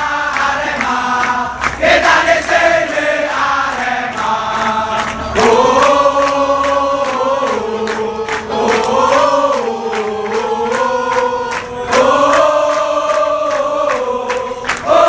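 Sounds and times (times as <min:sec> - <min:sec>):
crowd of supporters chanting: 0:00.0 - 0:15.0.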